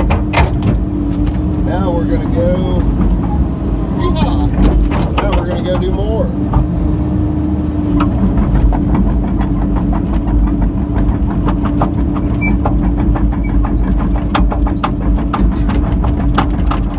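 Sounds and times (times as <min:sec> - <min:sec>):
diesel engine running: 0:00.0 - 0:16.9.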